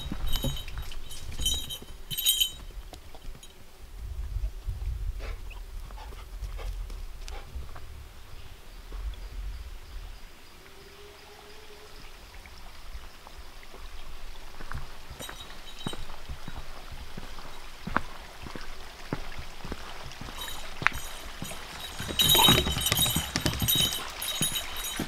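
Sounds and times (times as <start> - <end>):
metallic jingle: 0.0 - 2.7, 20.4 - 25.0
footsteps on dirt trail: 14.6 - 25.0.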